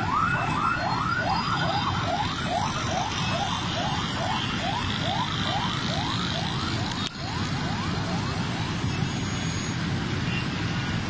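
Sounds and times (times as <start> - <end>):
siren whooping: 0.0 - 10.0
road traffic noise: 0.0 - 11.0.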